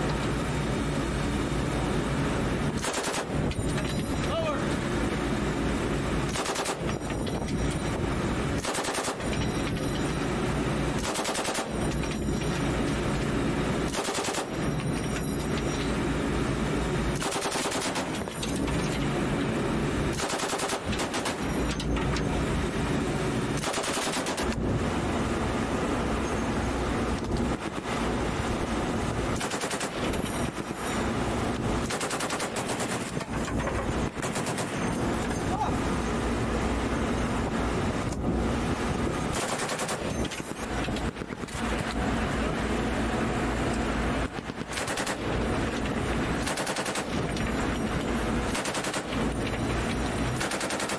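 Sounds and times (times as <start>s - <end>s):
steady low rumble: 0.0s - 50.5s
machine gun bursts: 2.8s - 3.7s, 6.3s - 7.1s, 8.6s - 9.6s, 11.0s - 12.2s, 13.9s - 15.1s, 17.2s - 18.9s, 20.1s - 21.8s, 23.6s - 24.6s, 29.4s - 30.5s, 31.8s - 35.0s, 39.3s - 40.7s, 44.5s - 45.3s, 46.4s - 50.9s.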